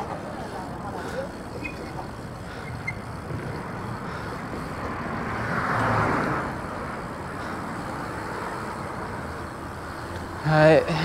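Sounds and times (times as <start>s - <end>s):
road traffic noise: 0.0s - 11.0s
vehicle whooshing past: 2.8s - 9.8s.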